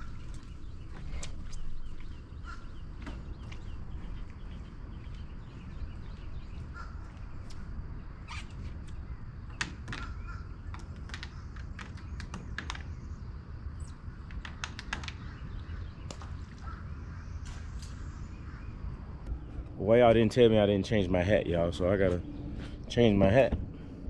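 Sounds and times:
sharp bird calls: 0:00.0 - 0:20.1
low outdoor rumble: 0:00.0 - 0:24.0.

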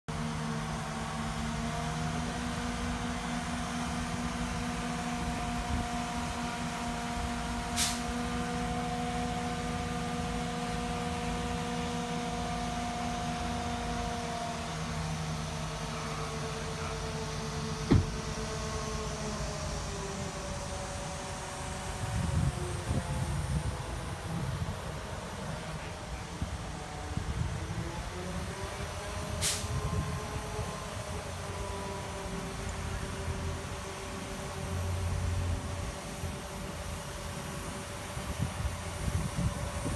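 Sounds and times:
crane engine running with humming whine: 0:00.1 - 0:39.9
sharp hiss: 0:07.4 - 0:08.2, 0:29.3 - 0:29.8.

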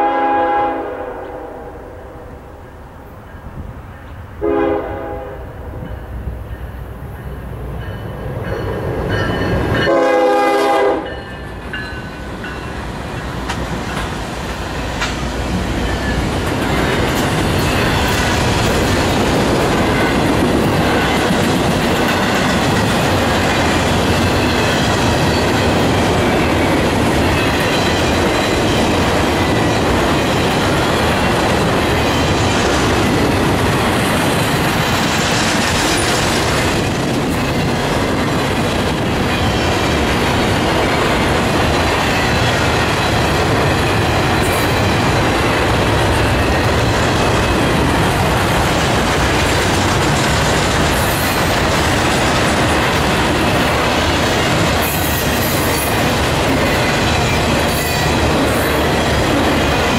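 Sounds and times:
locomotive horn: 0:00.0 - 0:02.2, 0:04.4 - 0:05.5, 0:09.8 - 0:11.2
freight train wheels on rails: 0:00.0 - 0:59.9.

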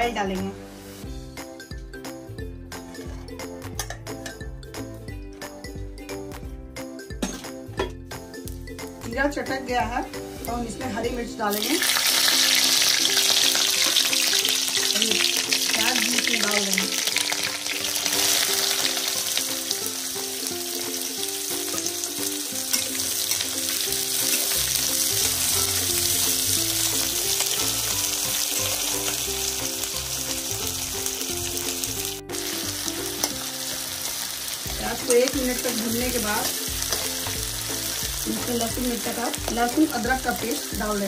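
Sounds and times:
onions sizzling in hot oil: 0:00.0 - 0:01.3, 0:09.8 - 0:41.0
spatula stirring: 0:34.7 - 0:39.7.

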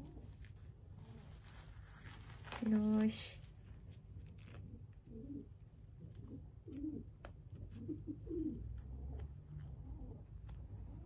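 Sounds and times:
pigeon cooing: 0:04.6 - 0:11.0.

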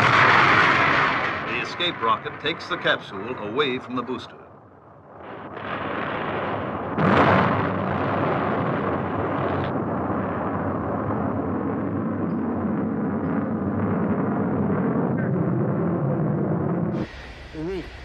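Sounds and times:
loud explosion blast: 0:00.0 - 0:03.9, 0:04.7 - 0:18.0
rumbling roar of fireball: 0:00.0 - 0:18.0
rushing noise: 0:12.1 - 0:18.0.

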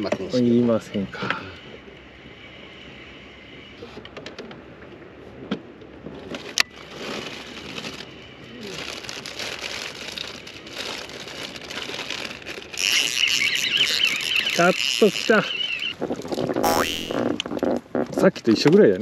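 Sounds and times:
plastic wrapper crinkling: 0:08.8 - 0:12.8.

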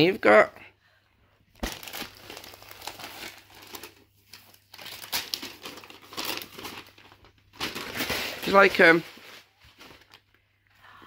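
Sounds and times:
wrapping paper crinkling and tearing: 0:01.6 - 0:10.4.

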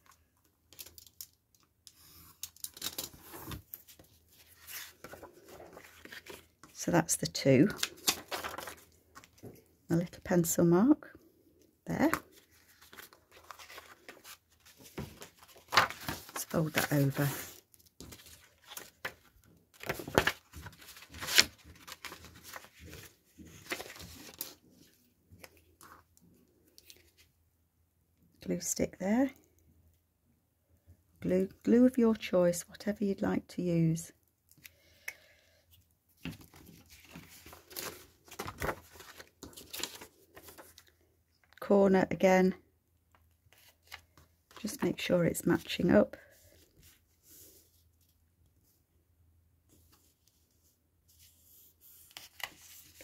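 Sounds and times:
paper scraping and rustling: 0:02.0 - 0:06.6, 0:07.7 - 0:09.4, 0:12.3 - 0:24.6, 0:36.4 - 0:40.9.

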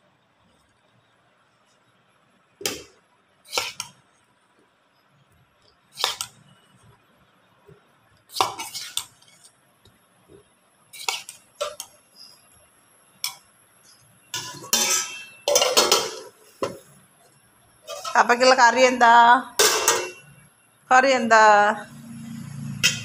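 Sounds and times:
spoon clinking against steel bowl: 0:14.4 - 0:16.1.

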